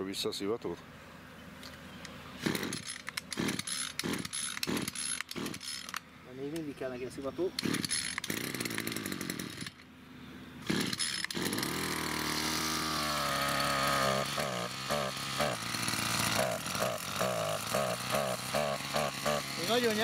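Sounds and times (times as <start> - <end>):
small petrol engine running: 2.4 - 6.0, 7.6 - 9.8, 10.6 - 20.0.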